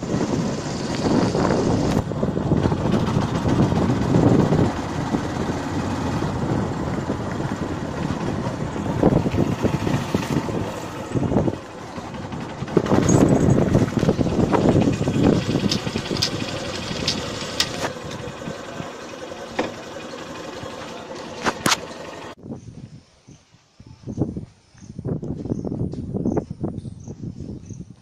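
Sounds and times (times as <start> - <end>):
motorcycle engine rumbling: 0.0 - 22.4.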